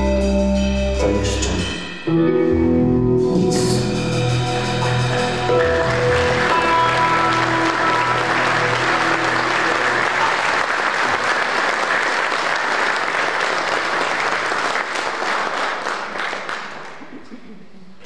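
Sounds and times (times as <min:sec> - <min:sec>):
music held notes: 0:00.0 - 0:11.0
audience applauding: 0:04.8 - 0:17.4.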